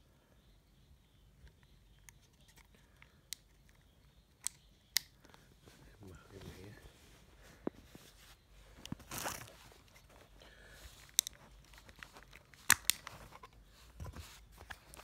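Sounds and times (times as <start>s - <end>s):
plastic phone cover snapping: 12.0s - 13.5s.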